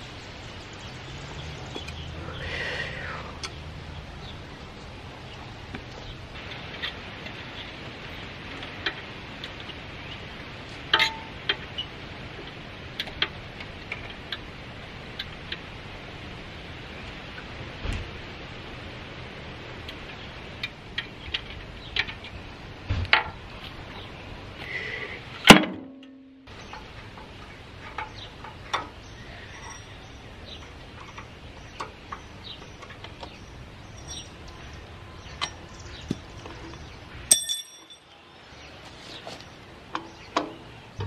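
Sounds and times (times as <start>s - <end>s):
loud metal clang: 25.5s - 26.4s
bright metallic ding: 37.3s - 38.1s.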